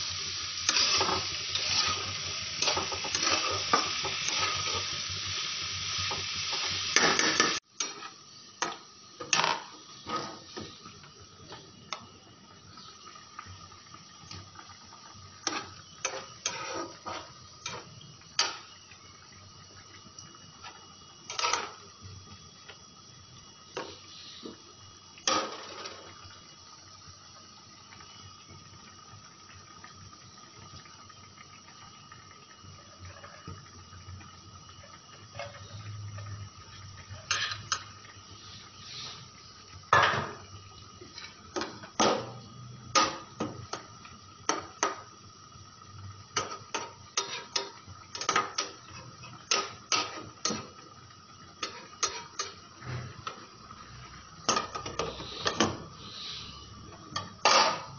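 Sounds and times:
faint steady whine: 0.0s - 57.9s
spatula scraping frying pan: 0.5s - 5.0s, 6.1s - 8.2s, 9.3s - 10.7s, 15.4s - 18.6s, 20.6s - 21.8s, 37.2s - 37.8s, 46.4s - 50.7s, 51.6s - 53.1s.

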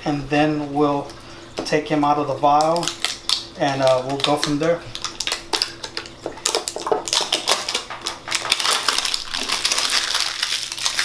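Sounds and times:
plastic wrapping crackling: 2.6s - 11.0s.

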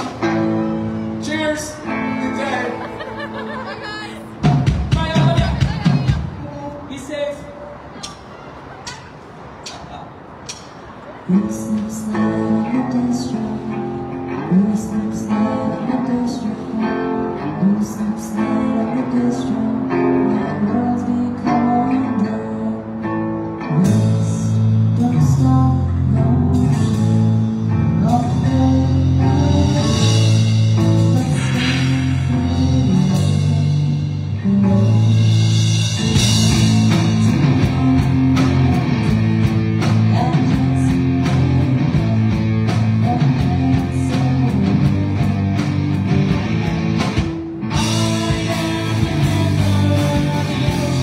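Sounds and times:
electric guitar: 0.0s - 6.4s, 11.4s - 51.0s
drum kit: 4.3s - 6.4s, 26.6s - 51.0s
person singing: 11.3s - 45.8s, 47.7s - 51.0s.

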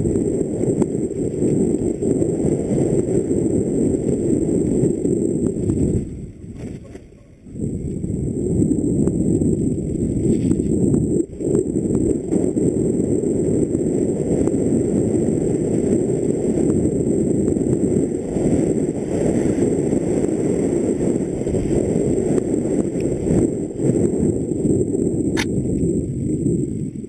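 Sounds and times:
bike tyres rolling on gravel: 0.0s - 27.0s
wind buffeting microphone: 0.0s - 27.0s
stones clicking and bike rattle: 5.7s - 7.2s, 10.0s - 10.9s.

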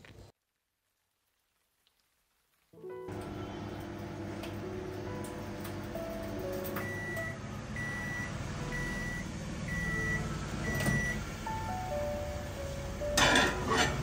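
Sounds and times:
microwave beeping: 3.1s - 14.0s
microwave door opening: 10.7s - 11.2s
plate clattering: 13.2s - 14.0s.

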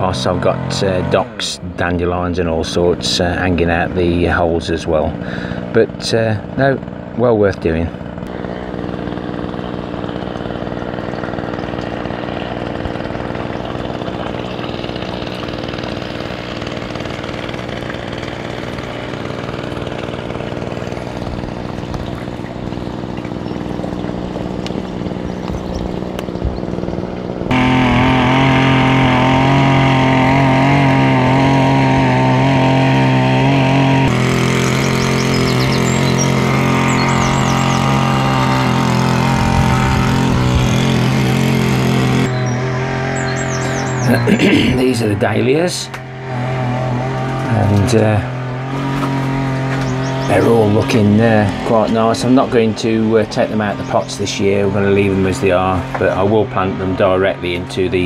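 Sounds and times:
engine drone: 0.0s - 58.0s.

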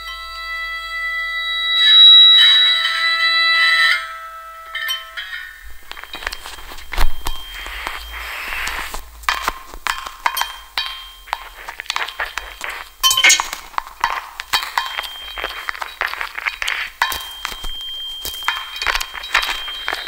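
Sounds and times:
small hard objects clinking: 4.8s - 20.0s.

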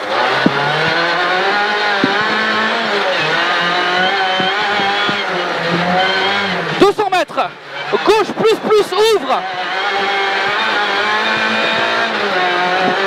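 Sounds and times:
car engine running hard: 0.0s - 13.0s
car knocks over dirt: 1.9s - 2.6s.

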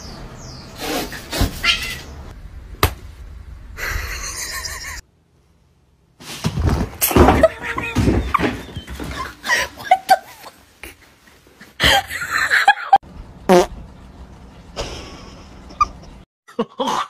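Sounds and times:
cat sounds: 1.3s - 2.1s.

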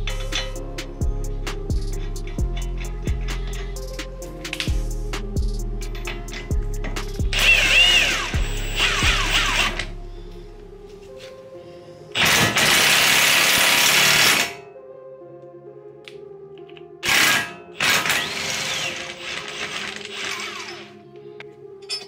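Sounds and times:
impact wrench running: 7.3s - 9.8s, 17.0s - 20.9s.

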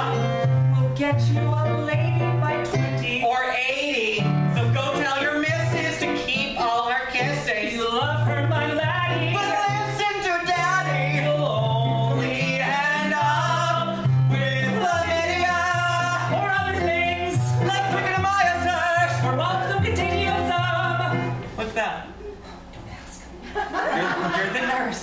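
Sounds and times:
keyboard: 0.0s - 21.6s
men singing: 4.6s - 21.3s.

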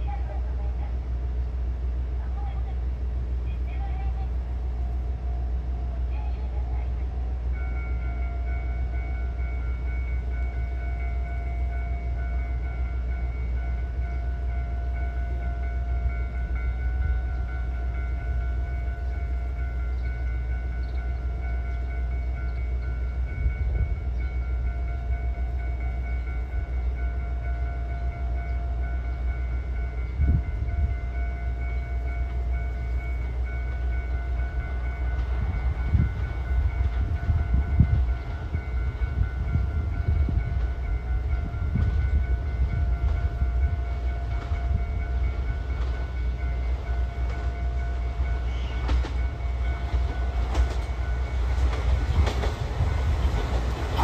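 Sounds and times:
train low rumble: 0.0s - 54.0s.

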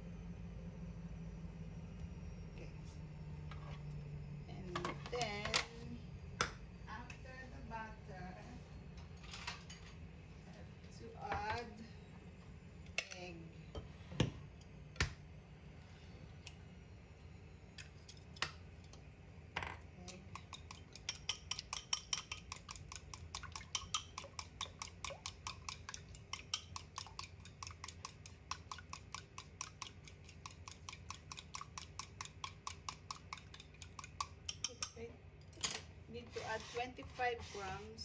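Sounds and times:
chopsticks beating egg in bowl: 20.0s - 35.0s.

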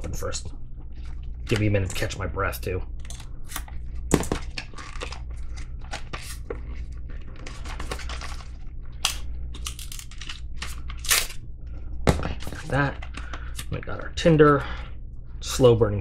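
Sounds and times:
packaging being torn and crinkled: 3.0s - 11.4s.

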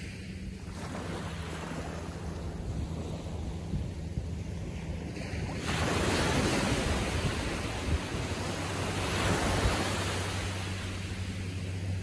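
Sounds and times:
small wave breaking on sand: 5.1s - 11.4s.

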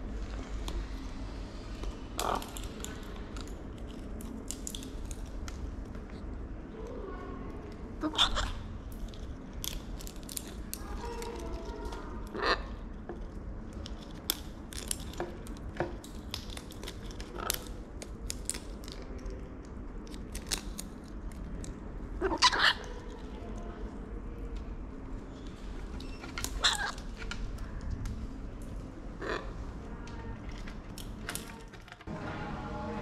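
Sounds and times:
macaws cracking seeds: 2.0s - 6.2s, 7.6s - 23.9s, 25.4s - 29.7s, 30.3s - 32.1s
macaw squawks: 22.2s - 22.9s.

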